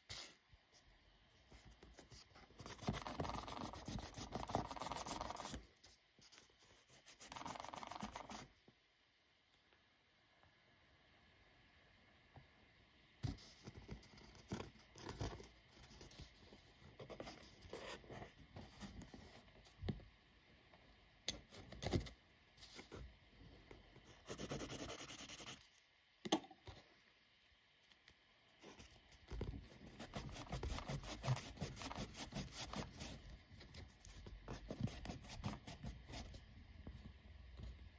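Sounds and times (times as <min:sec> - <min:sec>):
eraser rubbing on paper: 0:02.6 - 0:05.6, 0:06.3 - 0:08.4, 0:24.2 - 0:25.6, 0:29.9 - 0:33.3.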